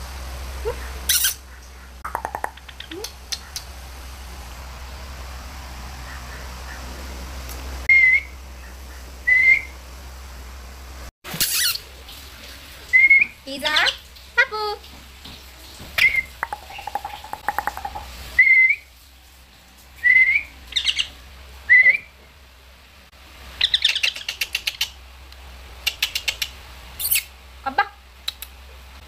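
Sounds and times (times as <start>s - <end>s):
parakeets chirping: 16.0s - 18.1s, 23.6s - 24.9s.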